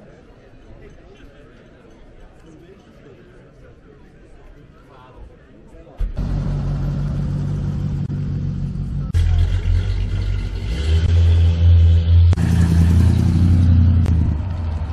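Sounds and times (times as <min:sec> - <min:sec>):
car engine pulling away: 0:06.0 - 0:14.9.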